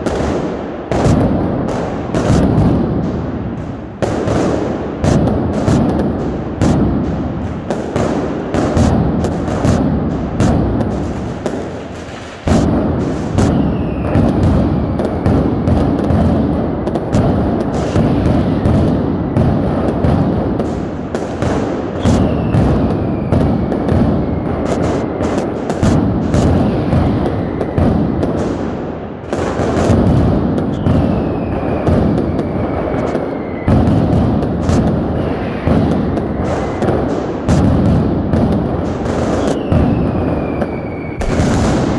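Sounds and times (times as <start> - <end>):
fireworks booms and cracks: 0.0 - 41.9
loud bang: 2.2 - 16.5, 41.0 - 41.9
falling whistle: 39.4 - 41.4.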